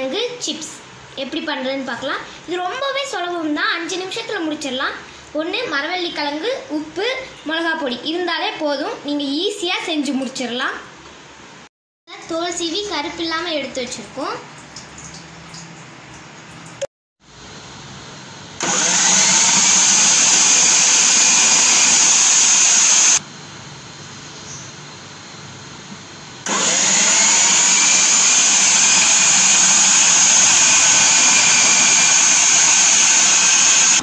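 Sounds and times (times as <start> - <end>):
food processor motor running: 18.6 - 23.2, 26.4 - 34.0.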